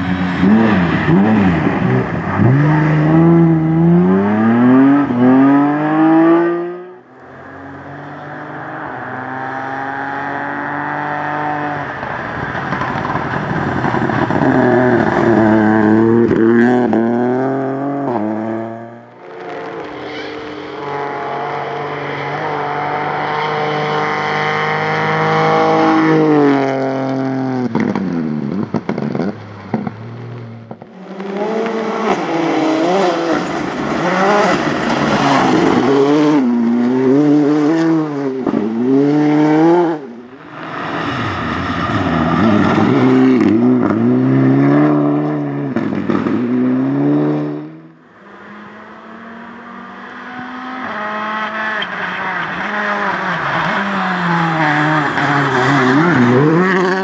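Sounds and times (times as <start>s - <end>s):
rally car engines revving: 0.0s - 57.0s.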